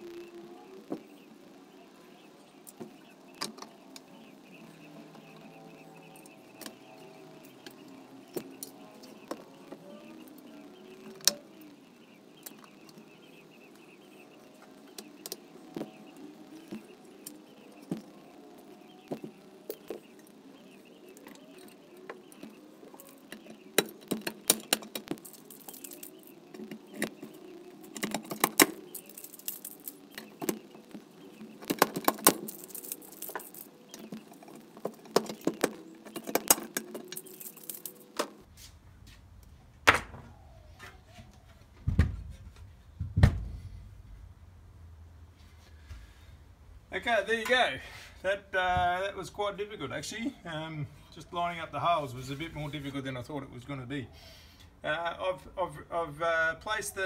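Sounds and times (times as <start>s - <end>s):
small metal parts clinking: 23.0s - 38.2s.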